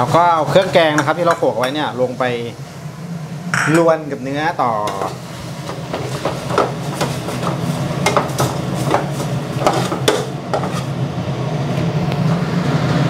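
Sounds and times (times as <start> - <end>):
steady low hum: 0.0 - 13.0
metal ladle scraping pot: 4.9 - 11.0.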